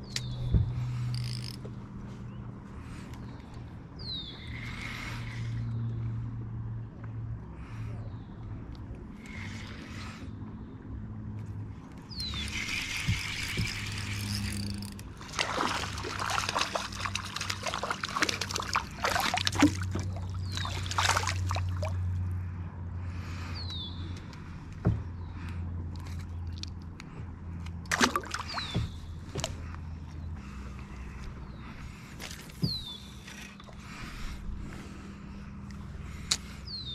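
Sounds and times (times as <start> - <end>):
fish splashing in water: 12.3 - 22.1, 27.9 - 29.5.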